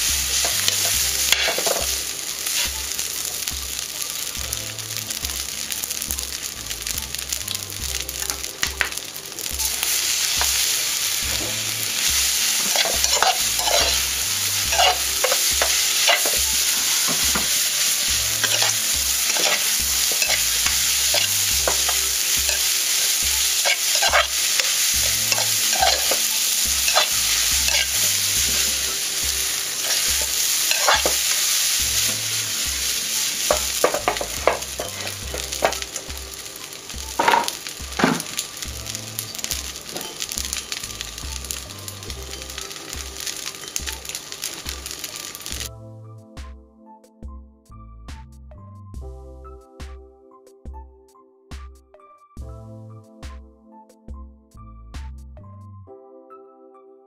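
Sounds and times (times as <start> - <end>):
food sizzling in a steel pan: 0.0 - 45.7
spatula scraping pan: 11.3 - 35.9.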